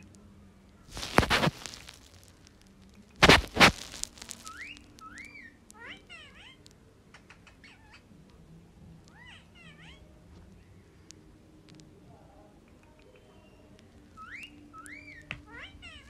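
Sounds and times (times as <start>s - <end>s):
parakeet squawking: 3.6s - 6.7s, 7.3s - 8.1s, 9.1s - 10.2s, 13.5s - 16.0s
parakeet whistles and chirps: 4.2s - 6.6s, 13.1s - 16.0s.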